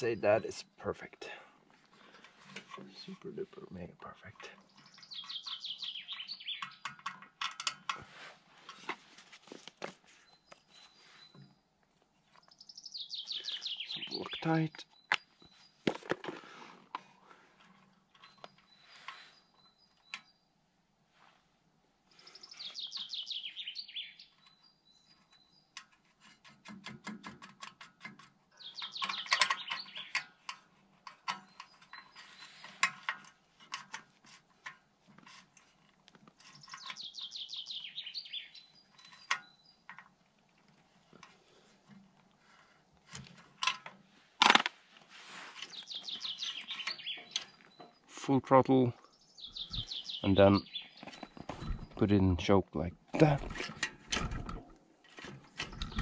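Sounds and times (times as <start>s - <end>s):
songbird trilling: 4.6s - 6.9s, 12.4s - 15.7s, 22.3s - 25.7s, 28.6s - 30.3s, 36.6s - 39.8s, 45.6s - 48.2s, 49.0s - 52.0s.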